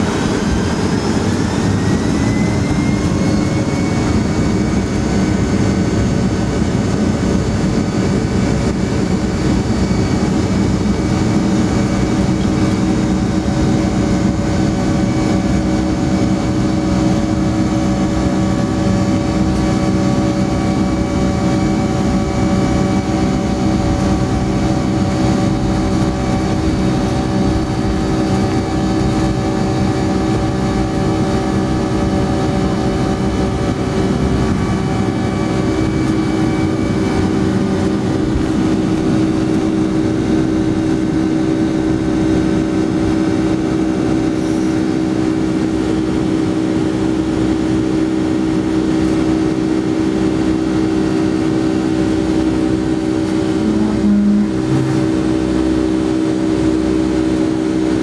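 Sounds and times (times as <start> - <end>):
jet engine drone from inside cabin: 0.0 - 58.0.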